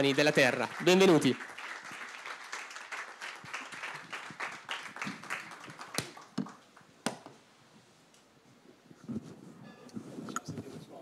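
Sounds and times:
audience applause: 0.0 - 6.8.

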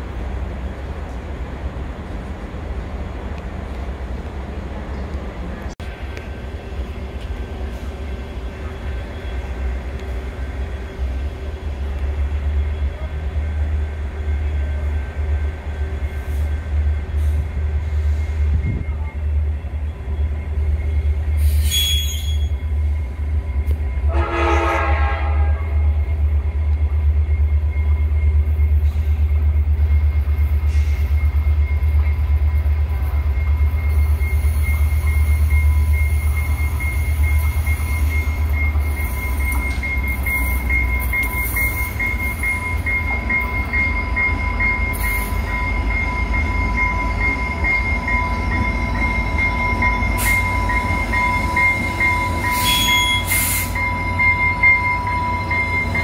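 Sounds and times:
low train rumble: 0.0 - 56.0
train horn blast: 24.0 - 25.9
locomotive bell ringing: 31.0 - 56.0.

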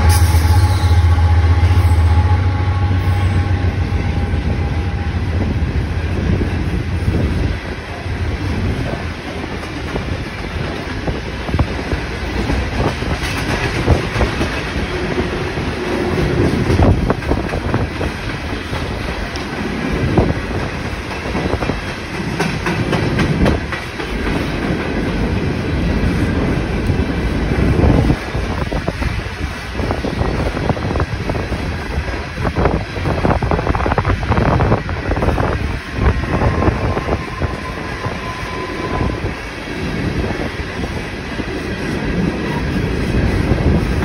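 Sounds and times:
train wheels rumbling on rails: 0.0 - 44.0
wheels clicking over rail joints: 9.3 - 29.6.

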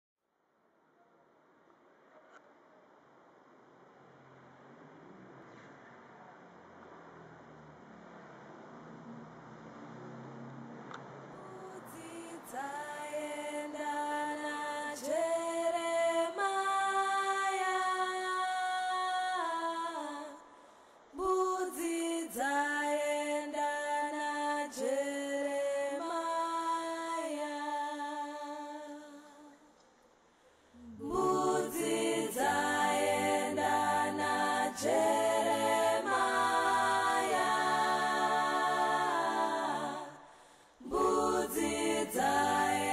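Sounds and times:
unaccompanied singing: 11.4 - 20.5, 21.2 - 29.7, 30.8 - 42.9.

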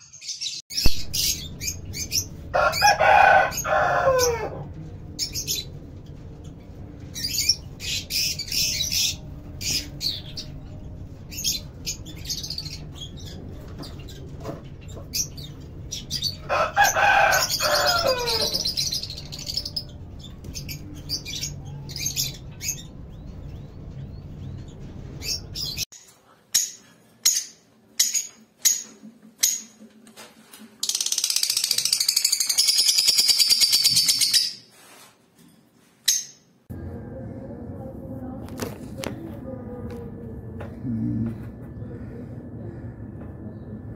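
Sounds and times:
low hum: 0.7 - 25.9, 36.7 - 43.9
high-pitched bird rattling: 30.8 - 34.6.

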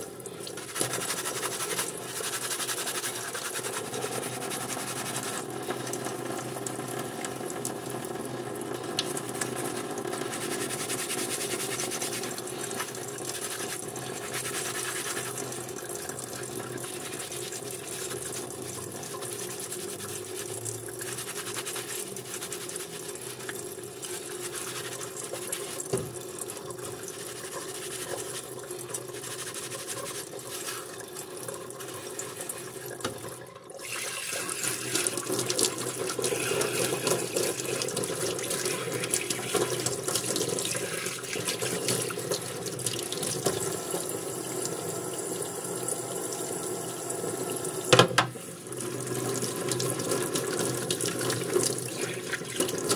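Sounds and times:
tap water running into sink: 0.0 - 52.9
sponge scrubbing metal: 0.6 - 5.5, 9.5 - 31.0, 31.7 - 32.8, 35.8 - 40.4.

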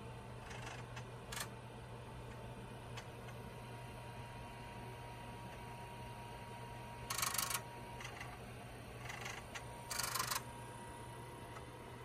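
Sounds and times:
floppy disk drives chattering: 0.3 - 1.6, 2.3 - 12.0.

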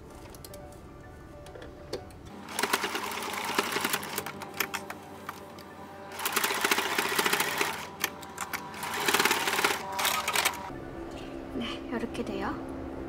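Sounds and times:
sewing machine stitching: 2.4 - 4.9, 6.1 - 10.7.

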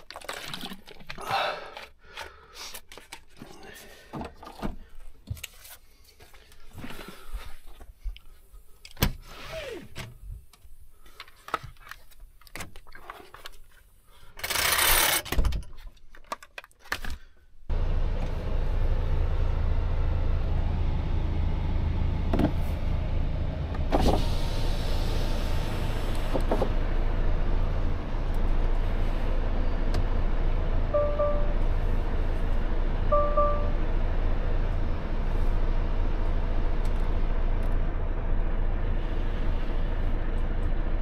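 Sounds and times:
truck diesel engine running: 17.7 - 41.0.

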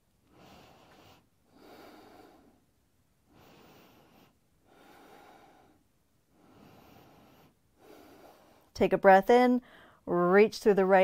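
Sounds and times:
person breathing softly: 0.2 - 8.8, 9.6 - 10.1.

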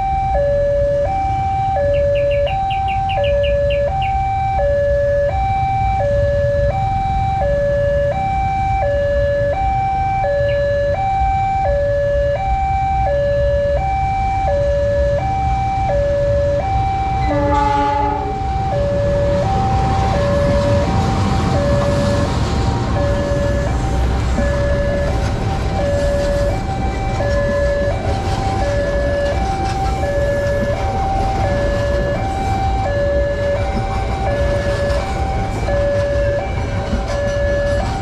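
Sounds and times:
level crossing two-tone alarm: 0.0 - 38.0
passing train rumble: 0.0 - 38.0
locomotive horn blast: 17.1 - 20.9.

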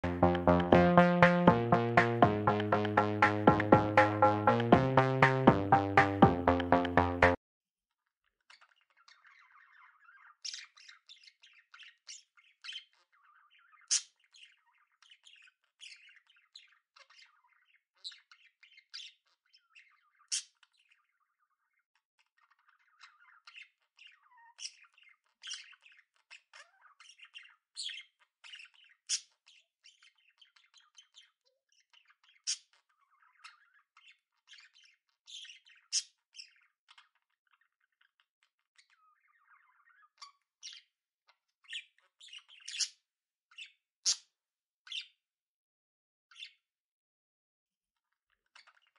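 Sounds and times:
budgerigars chirping and squawking: 8.5 - 44.3, 44.9 - 45.2, 46.3 - 46.6, 48.4 - 48.9.

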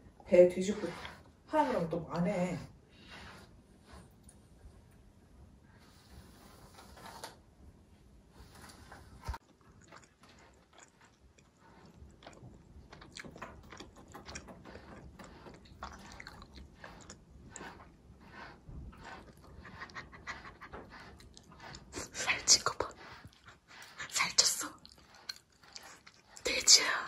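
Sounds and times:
brush strokes through dog coat: 0.3 - 4.6, 5.8 - 7.3, 14.8 - 27.0
dog chewing: 9.4 - 27.0.

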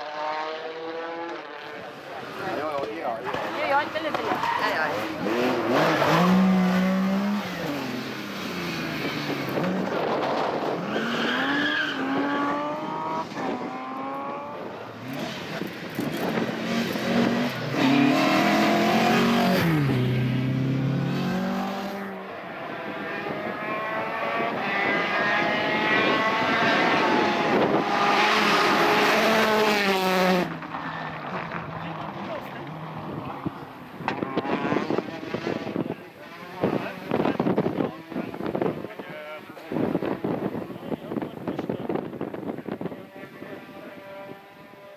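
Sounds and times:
rally cars passing at speed: 0.0 - 44.9
engines revving through gear changes: 4.8 - 30.6, 31.5 - 38.8.

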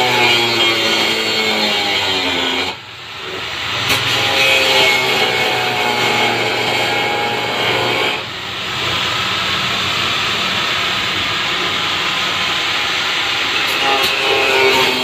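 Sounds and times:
angle grinder cutting plastic: 0.0 - 9.0, 13.3 - 15.0.

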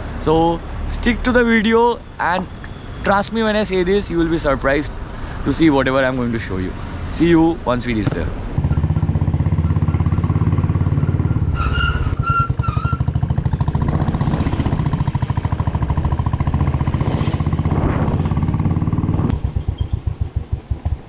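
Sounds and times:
motorcycle engine running: 8.1 - 11.5, 12.5 - 21.0.

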